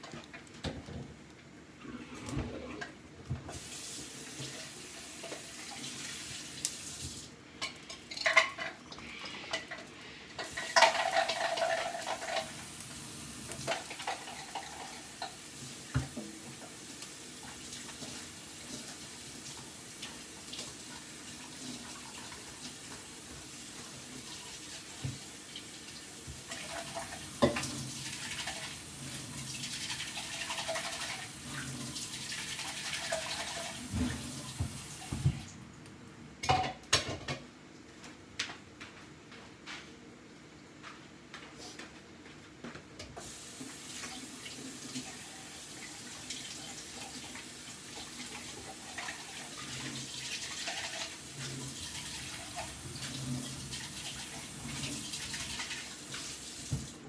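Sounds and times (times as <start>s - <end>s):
water running and splashing: 3.5s - 7.3s, 10.4s - 35.5s, 43.2s - 57.0s.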